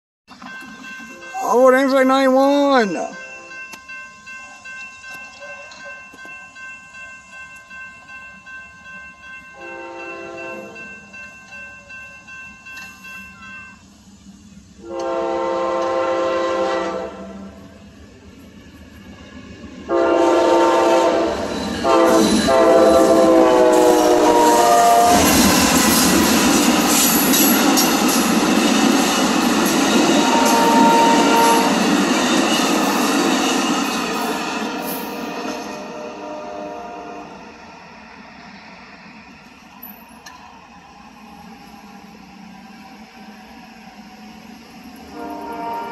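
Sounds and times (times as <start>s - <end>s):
crossing bell ringing: 0.3s - 14.2s, 19.9s - 37.0s
train wheels and cars rushing: 2.4s - 45.9s
train air horn blasts: 9.6s - 10.8s, 14.8s - 17.6s, 19.9s - 25.9s, 30.0s - 31.9s, 34.4s - 37.6s, 45.1s - 45.9s.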